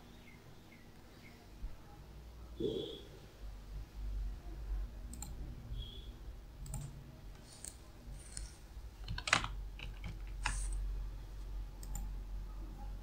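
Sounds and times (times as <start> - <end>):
keyboard typing: 5.1 - 5.4, 6.6 - 10.8, 11.8 - 12.2.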